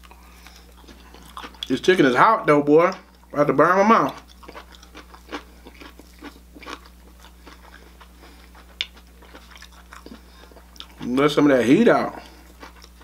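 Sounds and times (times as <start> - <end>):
chewing with wet mouth clicks: 0.0 - 1.7, 4.0 - 11.2, 12.2 - 13.0.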